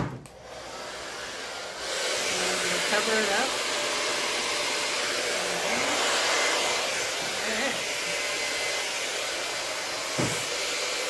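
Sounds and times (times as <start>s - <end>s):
hair dryer running: 0.0s - 11.0s.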